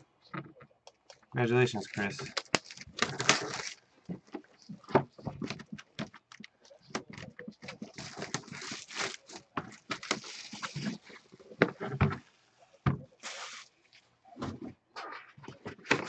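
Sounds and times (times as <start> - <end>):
hands rustling on cardboard box: 7.5 - 11.8.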